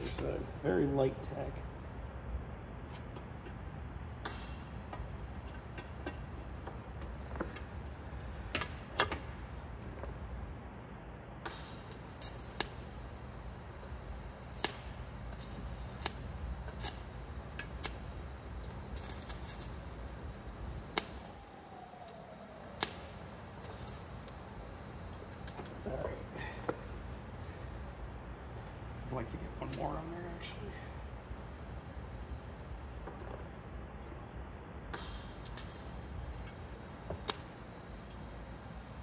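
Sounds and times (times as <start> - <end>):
welding crackling bursts: 11.5 - 13.1, 13.8 - 21.3, 22.0 - 25.6, 35.0 - 36.6
welder humming: 11.5 - 26.0
sharp clicks and snaps: 20.9 - 21.2, 22.0 - 23.0, 37.2 - 37.5.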